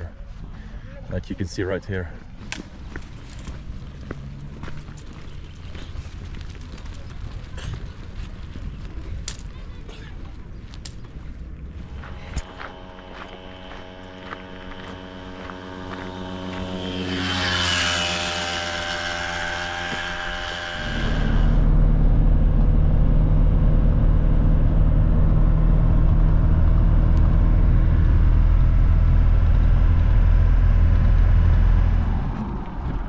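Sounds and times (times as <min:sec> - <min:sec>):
road noise: 0:00.0 - 0:33.0
vehicle engine passing by: 0:02.8 - 0:07.4, 0:11.6 - 0:33.0
van engine drone from inside: 0:11.7 - 0:33.0.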